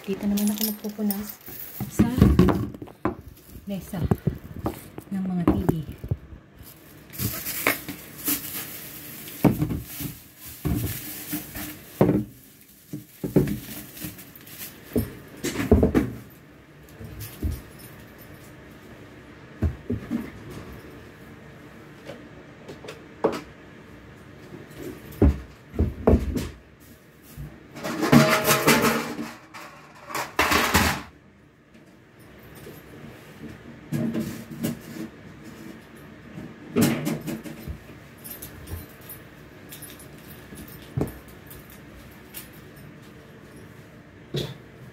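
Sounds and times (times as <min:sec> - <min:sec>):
objects knocking and clattering: 0:00.1 - 0:06.3, 0:07.1 - 0:16.3, 0:24.7 - 0:26.6, 0:27.7 - 0:31.1, 0:36.4 - 0:39.2
rustling and scraping: 0:00.1 - 0:15.8, 0:32.6 - 0:36.6.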